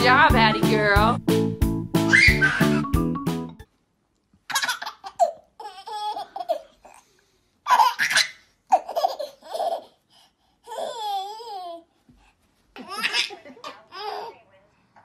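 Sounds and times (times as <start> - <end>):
baby laughing: 2.1 - 2.9, 4.5 - 6.9, 7.7 - 10.0, 12.8 - 14.4.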